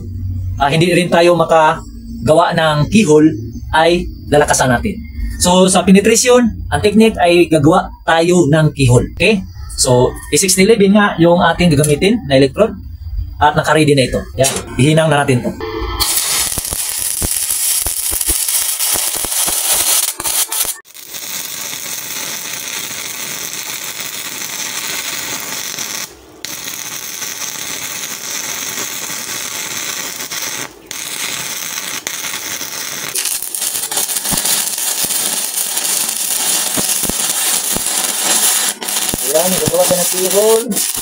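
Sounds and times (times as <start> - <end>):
welding arc crackling hiss: 16.0 - 41.0.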